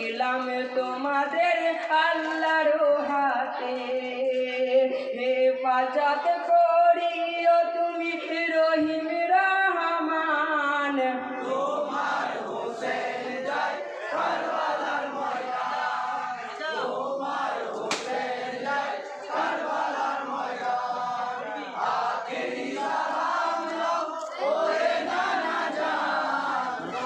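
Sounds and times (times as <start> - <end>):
men singing a lament in unison: 0.0 - 7.1, 10.8 - 27.0
group shouting together: 11.4 - 27.0.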